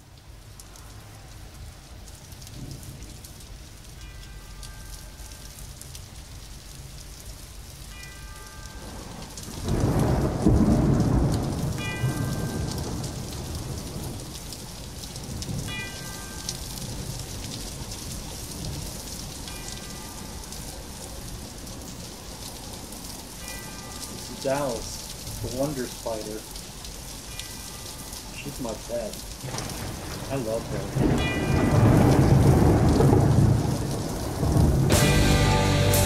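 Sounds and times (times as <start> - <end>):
steady rain falling: 0.0 - 36.0
thunder rumble: 8.9 - 19.5, 29.2 - 36.0.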